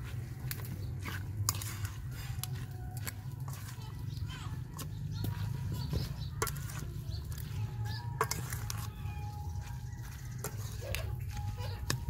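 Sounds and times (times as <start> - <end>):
salad rustling: 0.0 - 12.0
metal spoons clinking on bowl: 4.8 - 12.0.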